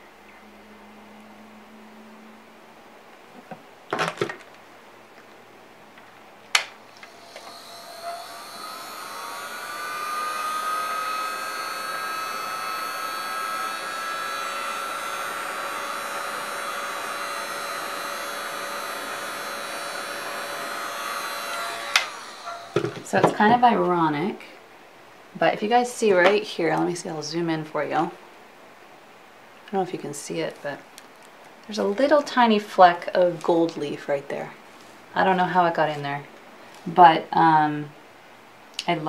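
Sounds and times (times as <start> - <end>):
heat gun blowing: 6.5 - 23.6.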